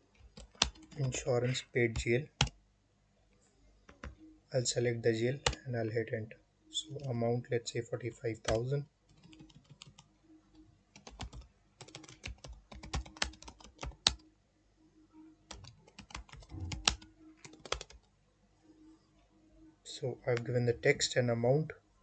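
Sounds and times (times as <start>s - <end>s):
typing on computer keyboard: 0.2s - 1.2s, 8.4s - 10.1s, 11.0s - 14.2s, 15.5s - 18.1s.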